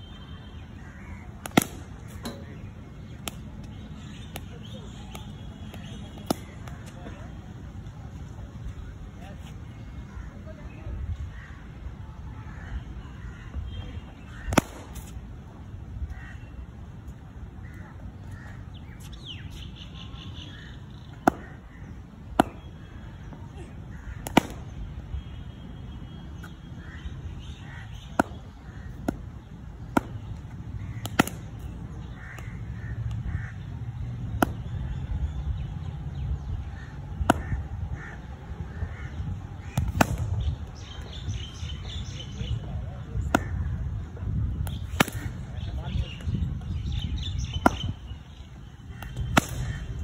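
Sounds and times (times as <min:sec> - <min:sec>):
cricket ball cracking on bat: 0:01.4 - 0:07.0, 0:14.4 - 0:15.2, 0:21.1 - 0:21.6, 0:22.3 - 0:22.7, 0:24.2 - 0:24.7, 0:28.0 - 0:33.2, 0:34.2 - 0:34.8, 0:37.2 - 0:37.6, 0:39.7 - 0:40.7, 0:43.2 - 0:43.7, 0:44.6 - 0:45.4, 0:47.6 - 0:48.0, 0:49.0 - 0:50.0.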